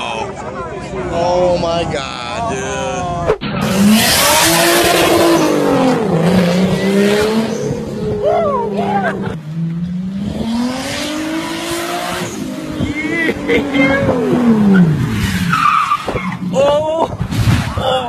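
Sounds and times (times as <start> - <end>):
car engine revving: 3.3 - 16.5
tyres squealing: 12.9 - 16.6.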